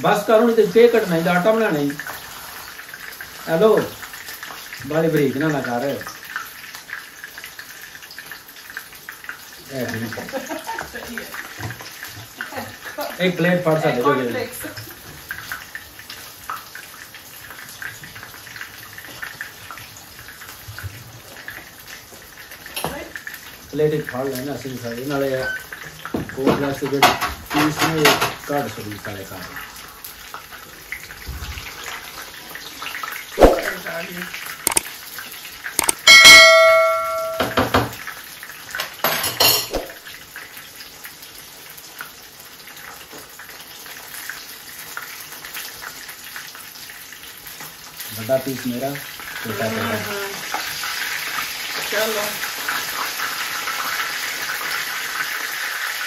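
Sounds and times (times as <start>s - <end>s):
chicken sizzling in oil: 0.0s - 56.0s
metal kitchenware clanging: 35.8s - 37.7s, 39.2s - 39.9s.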